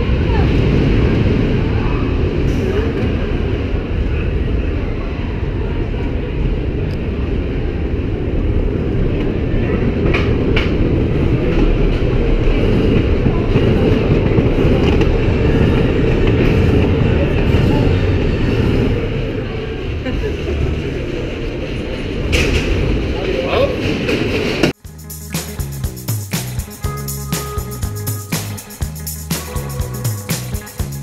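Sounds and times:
roller coaster wheels rumbling: 0:00.0 - 0:24.9
sharp clacks: 0:24.6 - 0:29.6.

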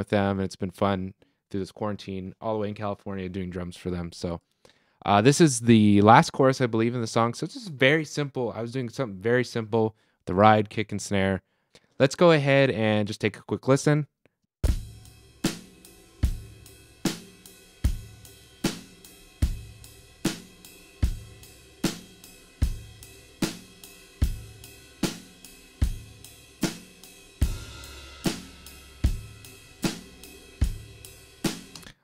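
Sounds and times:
drum kit playing slow groove: 0:07.4 - 0:07.8, 0:14.6 - 0:32.0.

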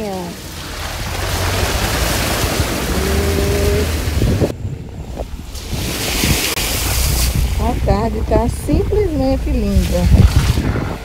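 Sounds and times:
muddy water splashing: 0:00.0 - 0:04.5, 0:05.2 - 0:11.0
engine droning: 0:00.0 - 0:05.5.

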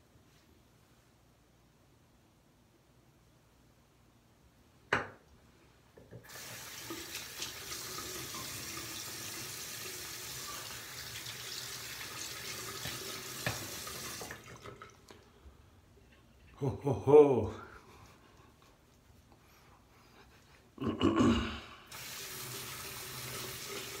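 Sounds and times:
sink tap running: 0:06.2 - 0:14.9, 0:21.9 - 0:24.0.

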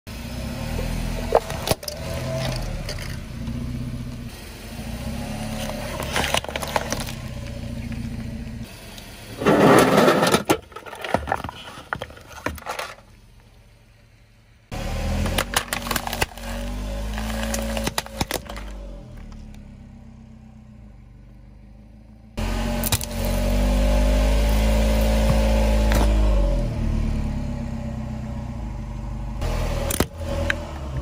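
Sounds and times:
car idling: 0:00.1 - 0:31.0
tyre crunching plastic and paper: 0:05.6 - 0:07.2, 0:15.3 - 0:18.8.

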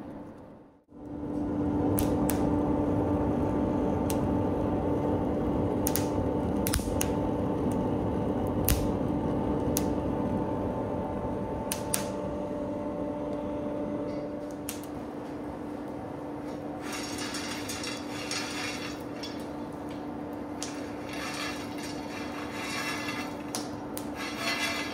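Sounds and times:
steady hum and rush of air: 0:00.0 - 0:24.9
wood fire crackling and popping: 0:01.9 - 0:02.5, 0:05.7 - 0:10.1, 0:11.6 - 0:12.2, 0:14.5 - 0:15.0, 0:16.6 - 0:24.9.

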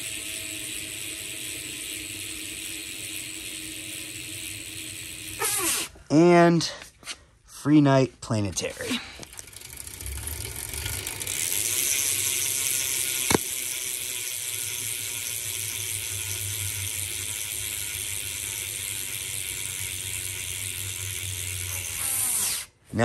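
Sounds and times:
bike hub ratcheting buzz: 0:00.0 - 0:06.0, 0:09.2 - 0:22.8
sharp click: 0:13.2 - 0:13.6.

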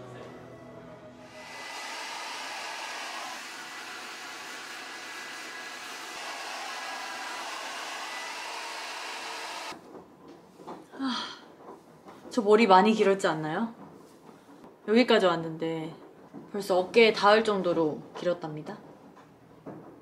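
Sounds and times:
hair dryer blowing: 0:01.3 - 0:09.8.

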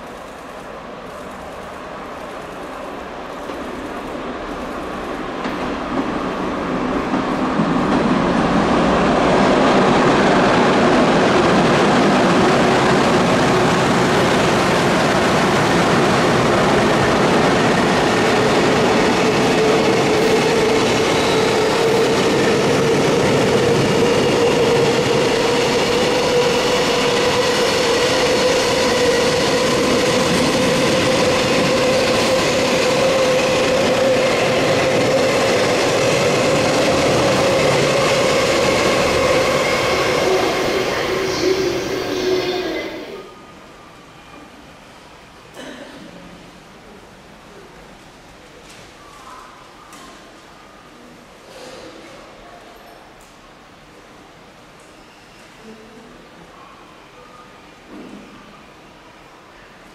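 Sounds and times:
steady locomotive whine: 0:00.0 - 0:45.4.

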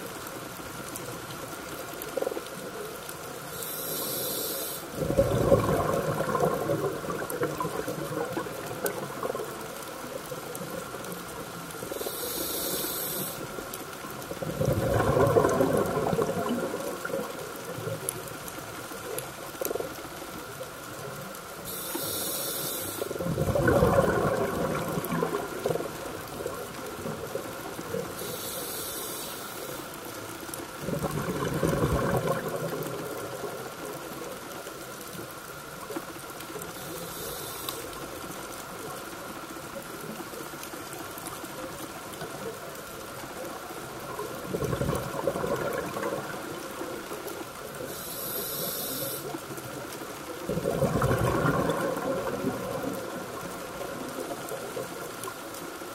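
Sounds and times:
air hissing through regulator: 0:03.5 - 0:04.9, 0:11.9 - 0:13.5, 0:21.7 - 0:23.1, 0:28.2 - 0:29.8, 0:36.8 - 0:37.9, 0:47.9 - 0:49.3
gurgle of exhaled bubbles: 0:04.9 - 0:21.9, 0:23.0 - 0:28.5, 0:30.6 - 0:34.4, 0:43.2 - 0:55.9.

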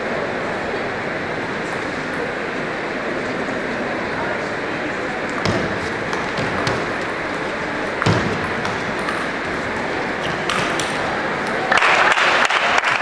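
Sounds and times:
background hall noise: 0:00.0 - 0:13.0
table tennis ball hits: 0:05.3 - 0:12.3.

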